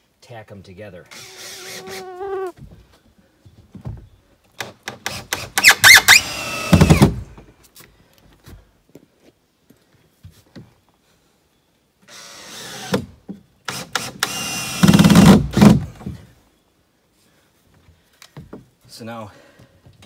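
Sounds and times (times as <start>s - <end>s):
cordless drill driving screws: 1.1s - 1.9s, 5.1s - 7.1s, 13.7s - 15.2s.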